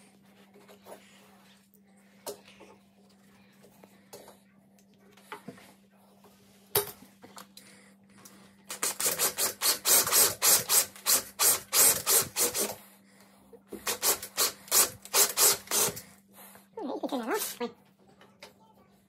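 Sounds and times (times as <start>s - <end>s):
cordless drill boring into wood: 8.7s - 12.7s, 13.8s - 16.0s.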